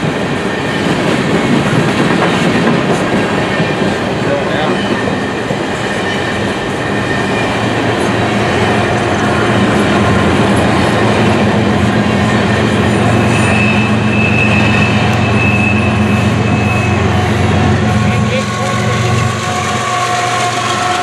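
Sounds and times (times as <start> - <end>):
train wheels rumbling and clattering: 0.0 - 21.0
high wheel squeal: 3.5 - 9.7, 12.2 - 21.0.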